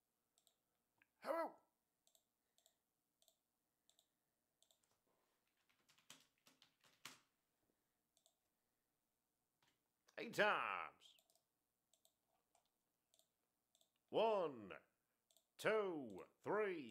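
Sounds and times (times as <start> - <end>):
keyboard typing: 2.0 - 7.3, 8.1 - 8.4.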